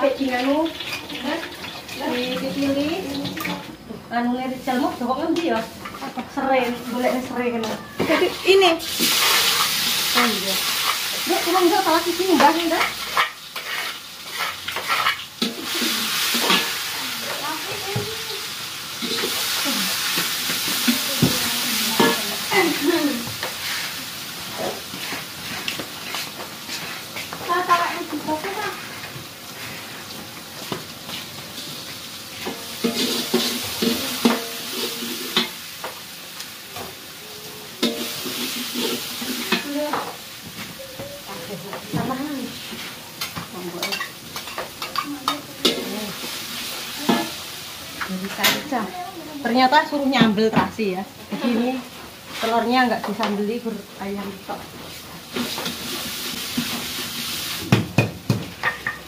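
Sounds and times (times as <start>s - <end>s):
food sizzling in a wok: 0.0s - 59.0s
metal spatula scraping a pan: 4.7s - 17.9s, 19.0s - 27.2s, 32.3s - 35.7s, 37.6s - 40.2s
ladle scraping and clinking pan: 32.4s - 35.6s.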